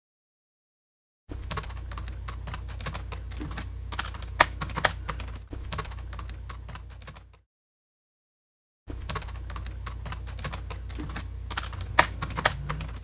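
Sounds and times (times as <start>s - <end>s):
low steady hum: 1.3s - 7.4s, 8.9s - 13.0s
fast keyboard typing: 1.4s - 7.4s, 9.0s - 13.0s.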